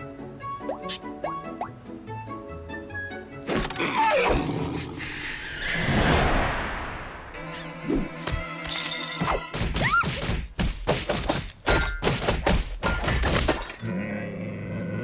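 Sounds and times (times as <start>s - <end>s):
background music: 0.0s - 5.3s, 7.2s - 10.6s.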